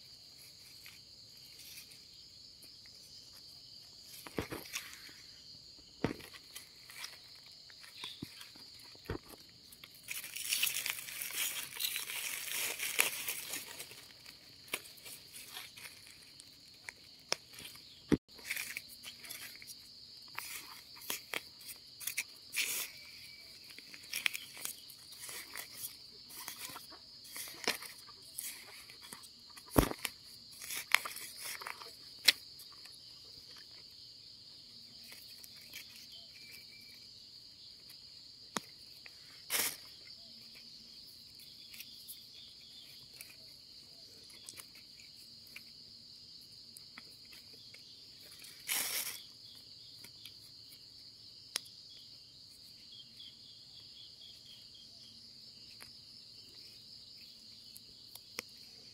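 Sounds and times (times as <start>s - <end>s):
hands digging in soil: 6.0s - 33.0s
high-pitched insect chirring: 6.1s - 33.7s.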